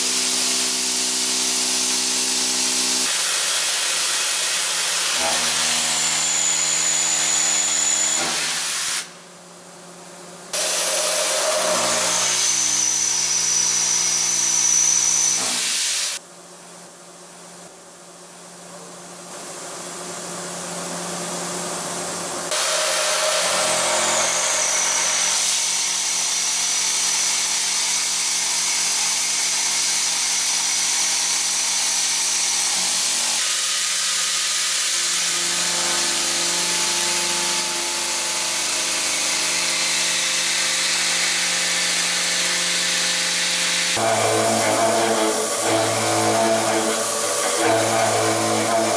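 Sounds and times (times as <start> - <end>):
milling machine cutting steel: 0.0 - 9.1, 10.6 - 16.2, 22.5 - 48.9
high thin spindle whine: 43.6 - 48.9.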